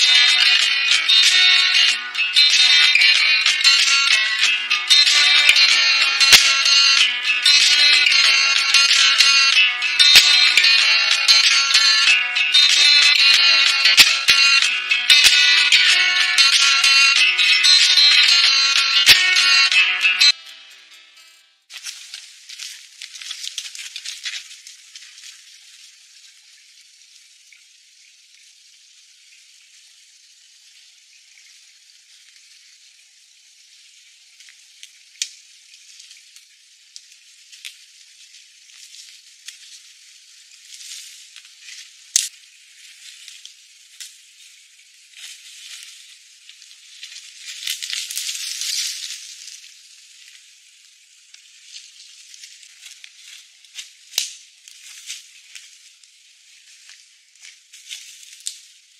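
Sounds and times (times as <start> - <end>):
footsteps in dry leaves: 20.3 - 26.5, 37.8 - 58.9.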